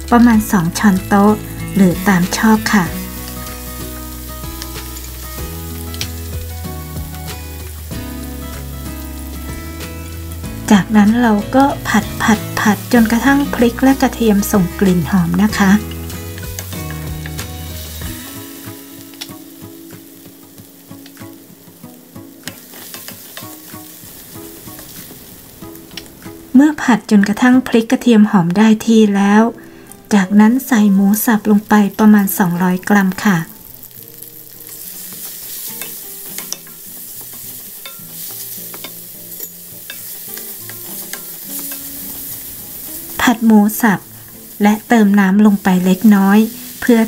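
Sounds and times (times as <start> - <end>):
chilli and garlic sizzling in oil: 0.0 - 47.0
wooden spatula scraping a wok: 33.9 - 43.3.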